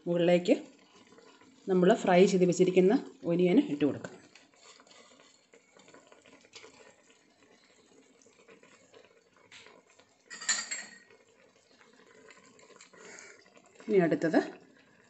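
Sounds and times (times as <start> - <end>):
utensil clinking on steel pot: 10.3 - 11.2.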